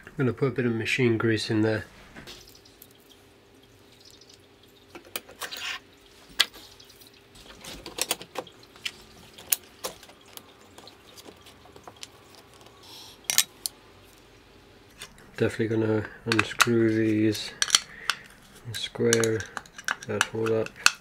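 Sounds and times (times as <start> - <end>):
faint steady hum: 0.0 - 21.0
metal parts clicking and knocking: 17.6 - 18.2, 19.0 - 21.0.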